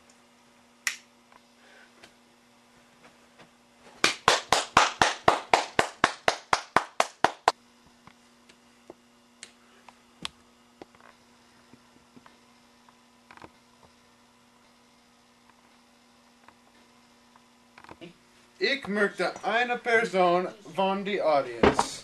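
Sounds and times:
hands clapping in a small room: 4.0 - 7.6.

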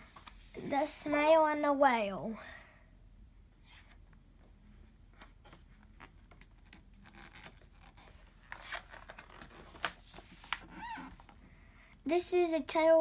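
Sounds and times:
paper rustling: 5.2 - 11.3.

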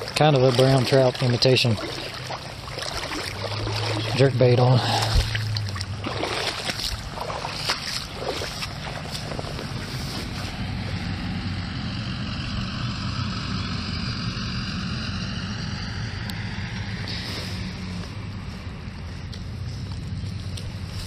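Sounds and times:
vehicle driving past: 0.0 - 21.0.

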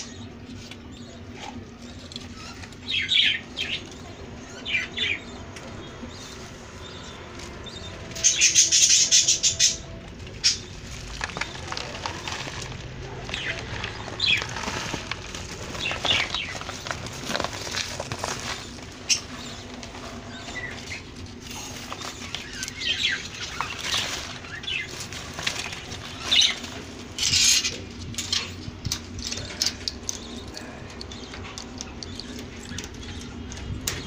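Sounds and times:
guinea pigs rustling in bedding: 0.0 - 34.0
plastic feed packet handled: 10.3 - 33.3.

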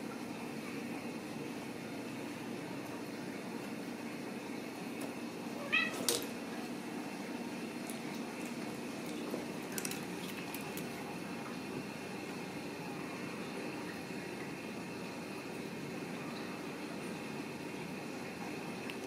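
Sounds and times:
kitten mewing: 5.6 - 6.2.

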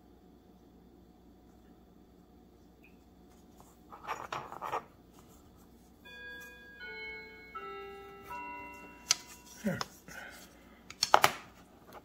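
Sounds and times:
bell-like chime tones: 6.0 - 9.8.

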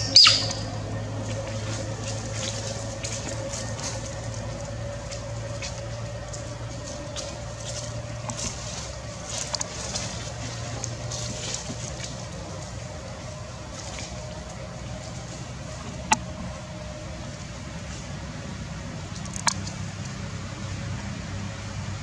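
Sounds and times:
motor humming: 0.0 - 22.0
light clicks and rustles: 1.2 - 16.6.

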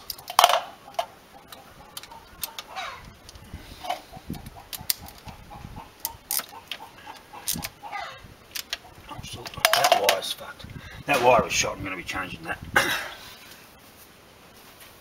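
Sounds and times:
hands clicking small metal parts: 0.0 - 3.4, 6.0 - 7.8, 8.5 - 8.8.

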